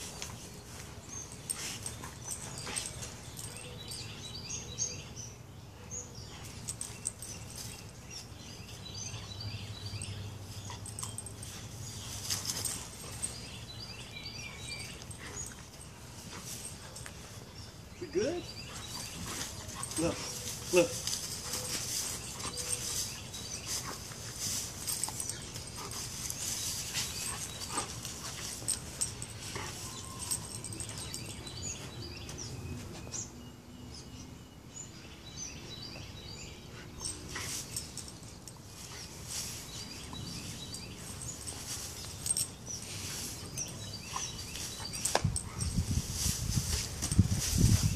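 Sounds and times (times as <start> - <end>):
dry straw rustling and crackling: 19.1 - 30.7, 44.4 - 47.9.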